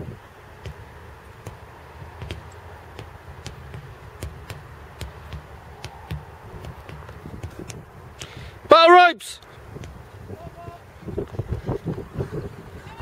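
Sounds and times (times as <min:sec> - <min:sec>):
sledgehammers striking tyres: 0:00.6 - 0:08.4.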